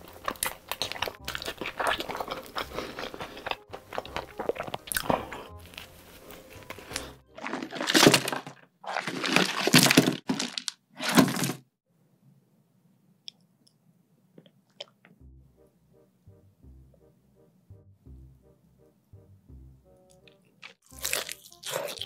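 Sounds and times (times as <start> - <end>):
crunchy chewing: 0.0 - 10.8, 20.1 - 22.0.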